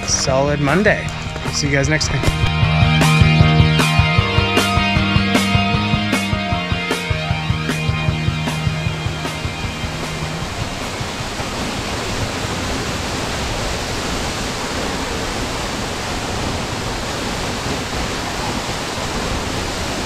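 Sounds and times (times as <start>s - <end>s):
waterfall rushing onto rocks: 8.4s - 20.0s.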